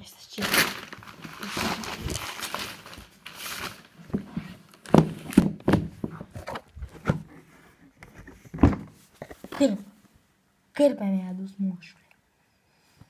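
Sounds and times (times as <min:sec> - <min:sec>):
foil rustling: 0:00.4 - 0:05.5.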